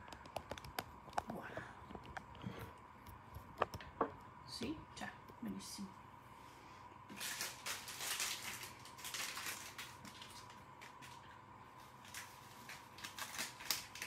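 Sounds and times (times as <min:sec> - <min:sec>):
plastic bag rustling: 0:07.1 - 0:14.0.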